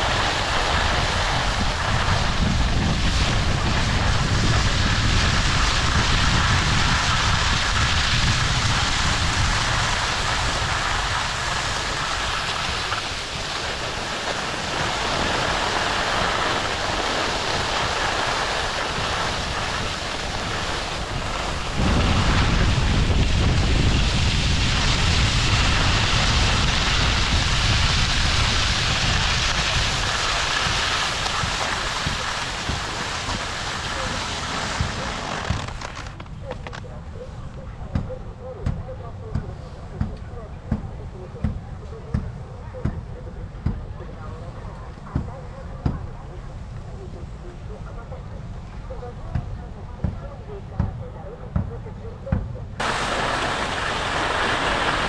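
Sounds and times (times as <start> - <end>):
skis sliding on snow: 0.0 - 23.2, 23.8 - 36.9, 52.8 - 55.0
wind buffeting microphone: 0.0 - 47.2, 52.6 - 55.0.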